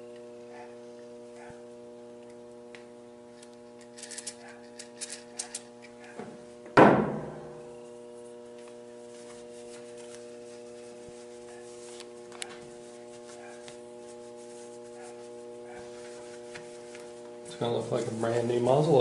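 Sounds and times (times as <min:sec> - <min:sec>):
electrical hum: 0:00.0 - 0:19.0
loud ringing clunk: 0:06.8 - 0:07.8.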